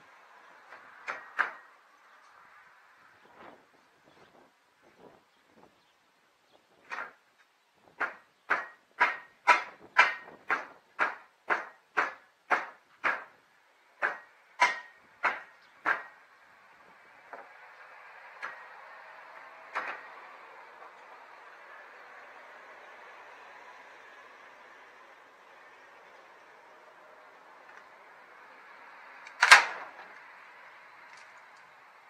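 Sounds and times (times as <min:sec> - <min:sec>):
passing truck rushing: 0:00.0 - 0:04.1, 0:08.0 - 0:32.0
hammer striking nail: 0:08.0 - 0:13.3, 0:14.0 - 0:16.2.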